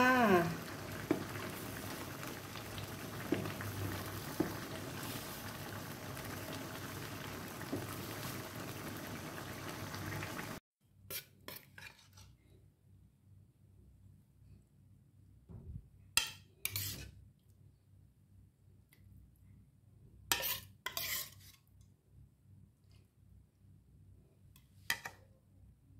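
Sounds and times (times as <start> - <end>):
sauce simmering in a wok: 0.0 - 10.6.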